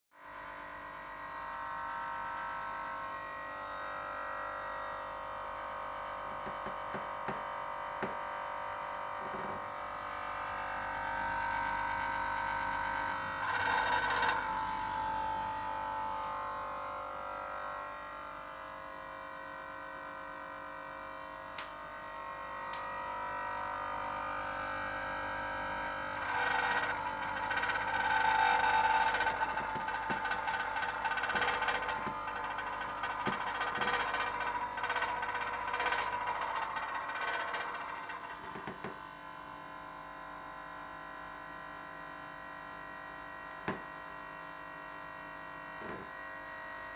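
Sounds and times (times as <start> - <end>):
refrigerator compressor humming: 0.4 - 46.9
buzzing rattle: 9.2 - 15.1, 24.8 - 39.2.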